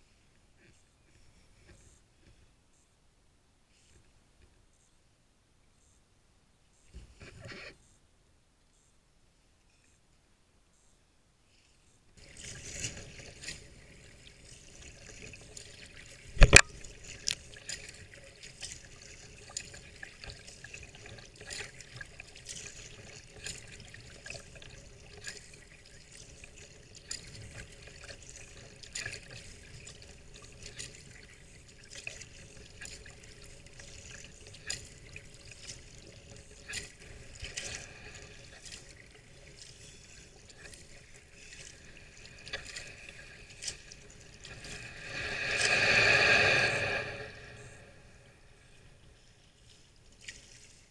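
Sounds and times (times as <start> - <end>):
small splashes and ticks: 12.2 - 46.1, 48.6 - 50.9.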